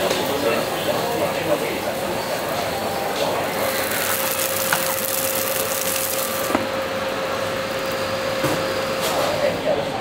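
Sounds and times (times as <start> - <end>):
cooking machine humming: 0.0 - 10.0
rice sizzling in a pan: 3.6 - 6.5.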